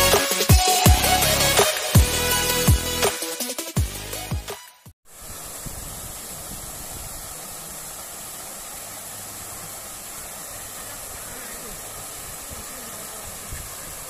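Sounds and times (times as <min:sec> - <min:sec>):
music: 0:00.0 - 0:04.9
running water rushing: 0:05.1 - 0:14.0.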